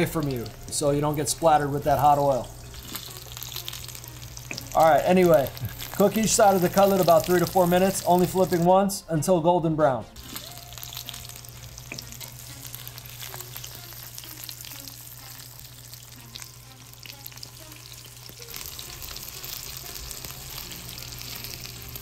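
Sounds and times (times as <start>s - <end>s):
chicken frying in oil: 0.0s - 8.7s, 10.2s - 22.0s
oil crackling and popping: 0.0s - 8.7s, 10.2s - 22.0s.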